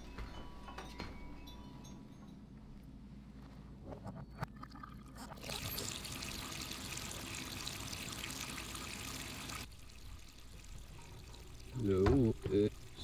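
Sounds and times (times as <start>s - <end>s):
faucet water pouring into metal sink: 5.4s - 13.0s.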